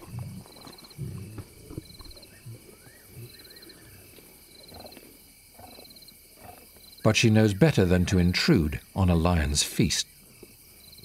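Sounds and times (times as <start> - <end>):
lions growling: 0.0 - 6.8
lions feeding: 0.0 - 7.0
insects trilling: 0.0 - 11.0.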